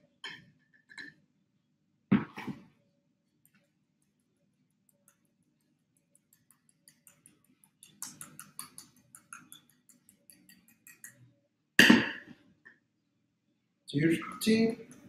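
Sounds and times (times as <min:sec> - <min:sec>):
rapid light ticking of utensil: 0:03.4 - 0:11.2, 0:14.8 - 0:15.0.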